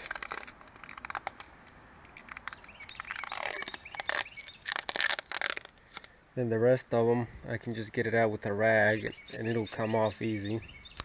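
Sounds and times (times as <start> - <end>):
fingers rubbing rubber coating: 2.2 - 5.8.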